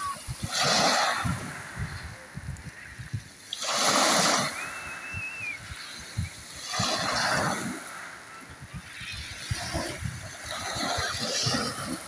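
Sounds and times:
waves washing on pebble shore: 0.0s - 12.0s.

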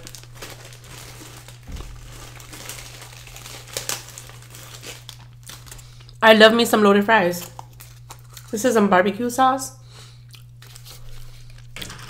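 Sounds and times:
plastic bag crinkling: 0.0s - 6.2s, 7.3s - 8.6s, 10.5s - 12.0s
soft low thump: 1.6s - 2.2s.

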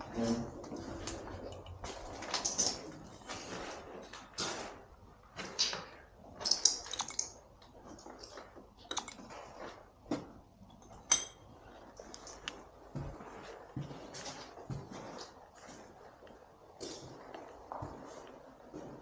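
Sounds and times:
hard objects clicking and knocking: 5.4s - 12.5s.

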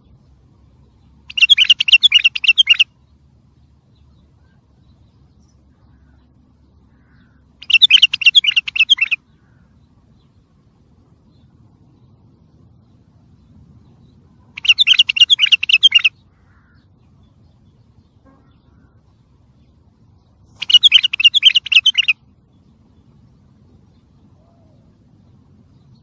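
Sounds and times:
bulbul singing rapid notes: 1.3s - 2.9s, 7.6s - 9.2s, 14.6s - 16.1s, 20.5s - 22.2s.

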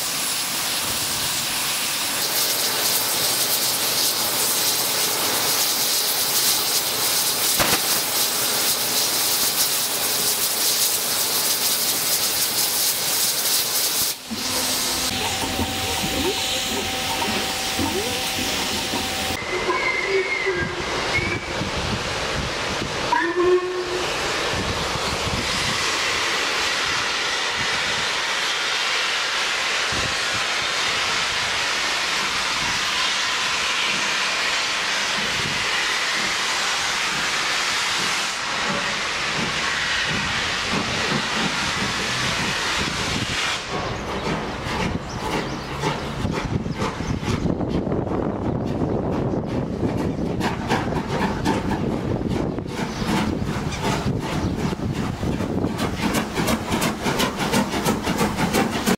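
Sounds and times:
steam locomotive working: 0.0s - 58.9s
steam rushing: 0.0s - 58.9s
locomotive whistle: 14.4s - 21.6s, 23.1s - 24.0s.

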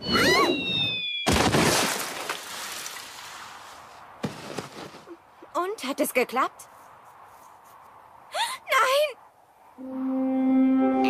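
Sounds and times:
cartoon crash shattering: 1.2s - 2.4s.

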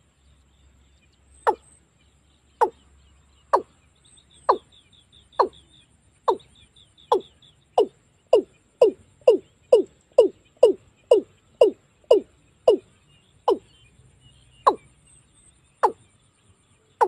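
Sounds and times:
watercock calling: 4.4s - 4.7s, 5.3s - 5.6s, 6.3s - 6.5s, 7.1s - 12.8s.

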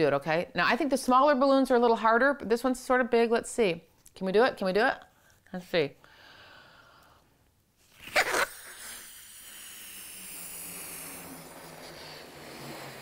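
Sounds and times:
sharp loud breath: 6.1s - 7.3s
person blowing into balloon: 7.8s - 13.0s.

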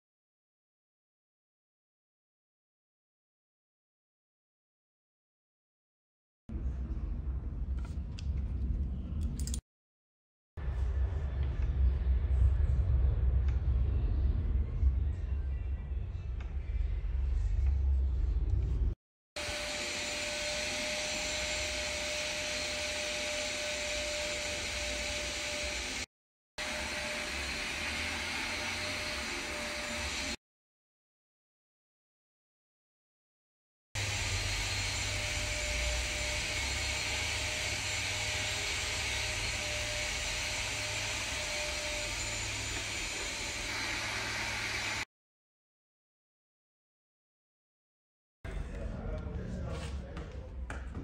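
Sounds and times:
blower whooshing: 19.4s - 30.4s, 34.0s - 45.1s.

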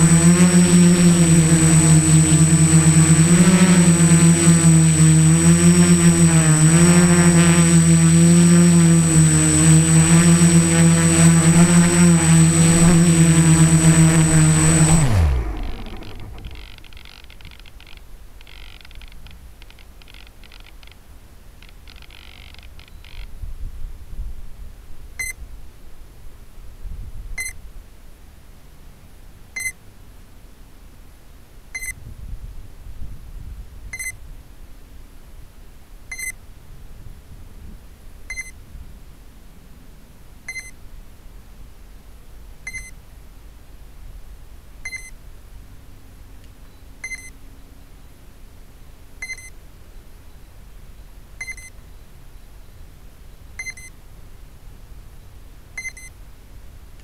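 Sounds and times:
wind rumbling on microphone: 9.0s - 17.6s, 32.0s - 34.5s
short electronic beeps: 31.8s - 32.0s, 34.0s - 34.2s, 36.1s - 36.4s, 38.3s - 38.6s, 40.5s - 40.8s, 42.7s - 42.9s, 44.9s - 45.1s, 47.0s - 47.4s, 49.2s - 49.6s, 51.4s - 51.8s, 53.6s - 54.0s, 55.8s - 56.2s.

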